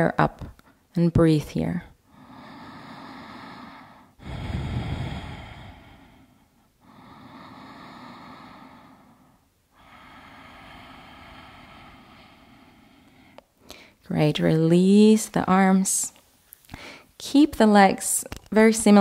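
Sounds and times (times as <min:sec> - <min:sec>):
woman breathing deeply: 0:02.0 - 0:14.0, 0:16.7 - 0:17.2.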